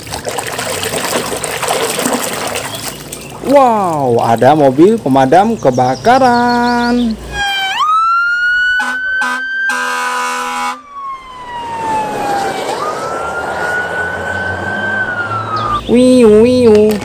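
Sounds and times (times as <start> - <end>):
fire engine siren wailing: 7.3 - 16.3
horn toots: 8.8 - 10.9.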